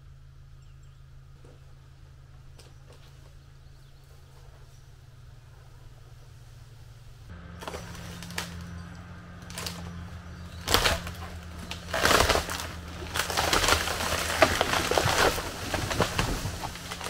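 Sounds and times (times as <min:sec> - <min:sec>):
tractor diesel engine running: 0:00.0 - 0:17.0
wood cracking and snapping: 0:07.6 - 0:17.0.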